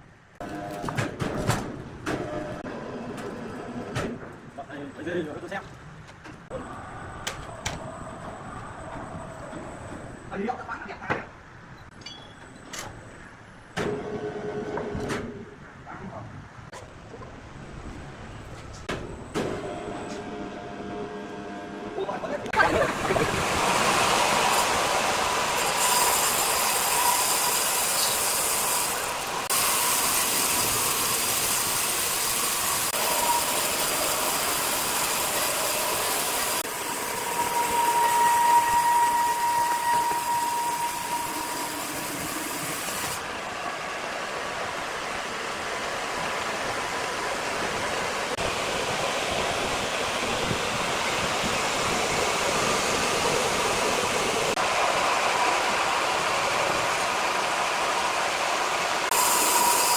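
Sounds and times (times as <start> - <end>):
band saw cutting log: 23.2 - 43.2, 59.0 - 59.9.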